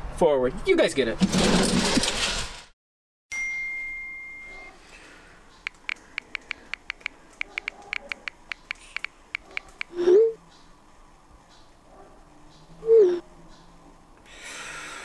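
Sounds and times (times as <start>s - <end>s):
phone keyboard clicks: 5.6s - 9.9s.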